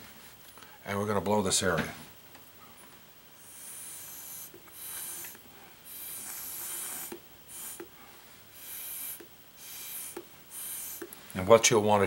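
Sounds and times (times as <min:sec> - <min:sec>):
breath blown through a straw: 0:03.4 - 0:11.2.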